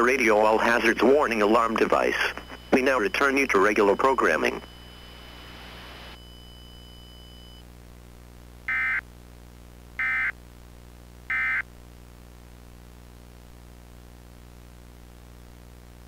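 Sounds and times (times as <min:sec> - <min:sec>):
radio static hiss and hum: 0:00.0 - 0:16.0
two-tone digital data bursts: 0:01.4 - 0:04.9.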